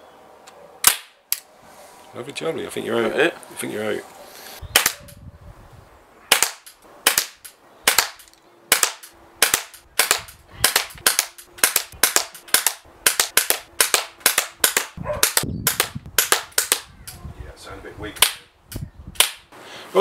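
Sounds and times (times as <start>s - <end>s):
pellet pistol shots: 0.8s - 1.2s, 4.7s - 5.0s, 6.3s - 16.9s.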